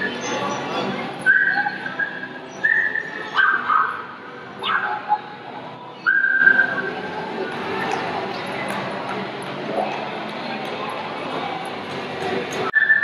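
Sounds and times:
background hubbub: 0.0s - 13.0s.

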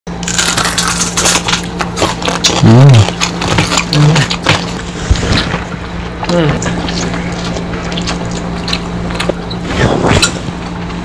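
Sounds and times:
steady low hum: 0.1s - 11.0s
fried fish crunching when chewed: 0.2s - 9.5s
person humming mmm: 2.5s - 4.6s, 6.2s - 7.3s.

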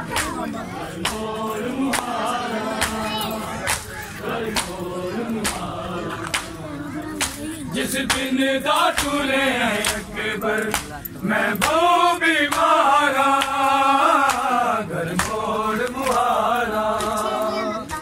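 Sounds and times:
men chanting a lament: 0.0s - 18.0s
chest-beating slaps: 1.9s - 2.2s, 3.6s - 4.8s, 5.4s - 6.6s, 9.0s - 9.2s, 9.8s - 10.1s, 10.7s - 11.0s.

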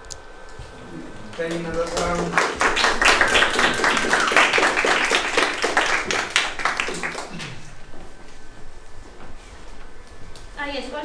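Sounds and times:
small group applauding: 1.1s - 7.9s
voices over clapping: 1.2s - 7.6s.

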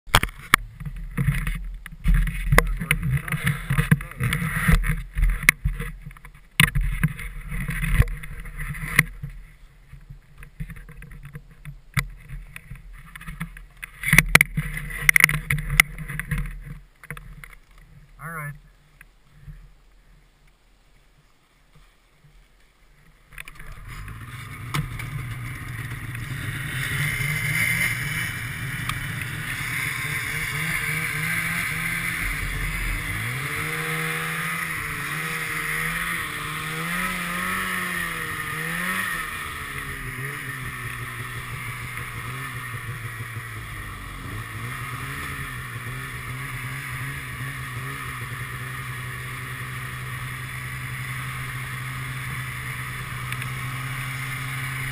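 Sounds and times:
snowmobile engine revving: 2.1s - 5.9s, 23.4s - 54.9s.

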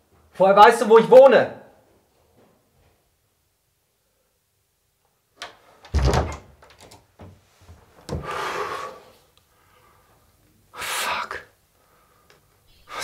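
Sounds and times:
wooden door shutting with thud: 5.9s - 7.4s.

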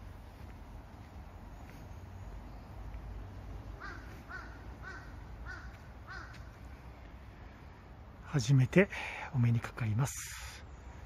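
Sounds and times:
crow cawing: 3.8s - 6.6s.

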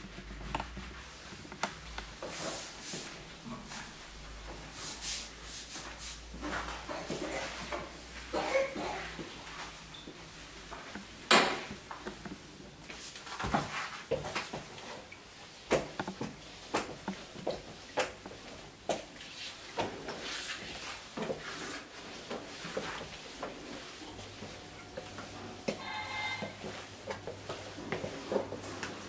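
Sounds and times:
mop head swishing: 0.2s - 11.2s, 18.0s - 29.0s
footsteps: 15.7s - 29.0s.

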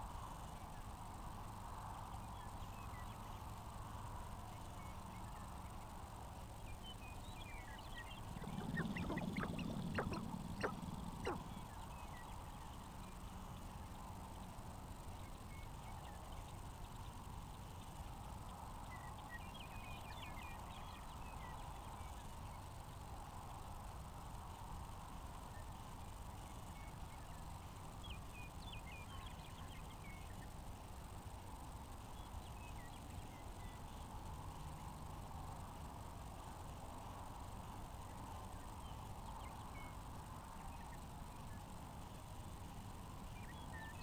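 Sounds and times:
faint steady hiss: 0.0s - 44.0s
grouse clucking calls: 8.2s - 11.7s
grouse cooing and cackling: 8.4s - 11.6s.

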